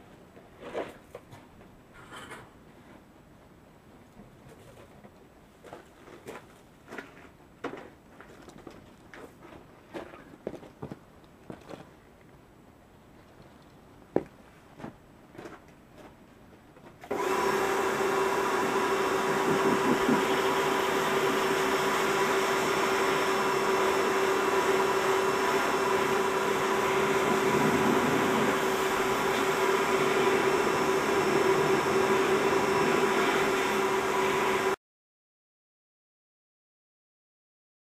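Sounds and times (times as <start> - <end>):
pressure washer humming: 17.0 - 34.8.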